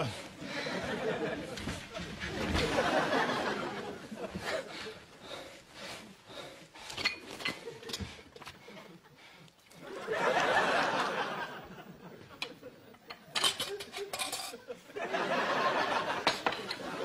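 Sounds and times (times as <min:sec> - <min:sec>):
studio audience laughing: 0:00.0 - 0:04.9, 0:08.6 - 0:17.0
metal teapot being handled: 0:06.9 - 0:08.5, 0:13.0 - 0:14.6
china teacups clinking: 0:13.1 - 0:14.6.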